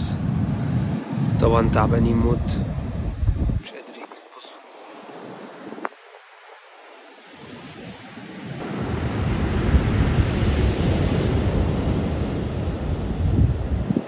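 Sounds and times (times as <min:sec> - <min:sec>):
heavy surf breaking: 0:00.0 - 0:14.0
wind on microphone: 0:00.0 - 0:14.0.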